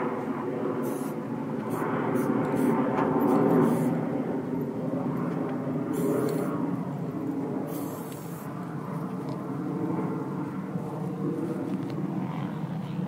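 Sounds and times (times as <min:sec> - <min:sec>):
steady low rumble: 0:00.0 - 0:13.0
aerosol spray can hissing: 0:07.7 - 0:08.5.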